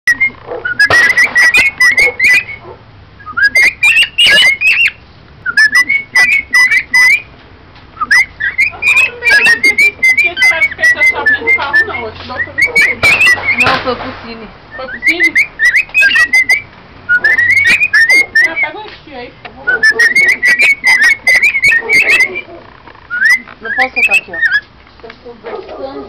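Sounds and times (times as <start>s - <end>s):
cockatiels chirping: 0.1s - 7.3s, 8.0s - 24.7s.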